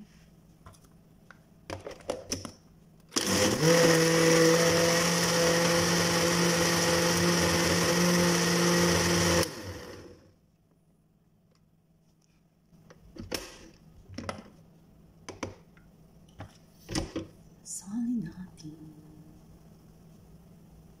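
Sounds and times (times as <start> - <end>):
blender running: 3.2 - 10.3.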